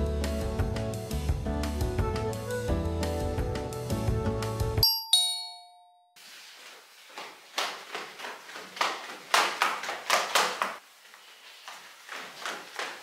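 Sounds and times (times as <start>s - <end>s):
two-note door chime: 4.8s - 6.2s.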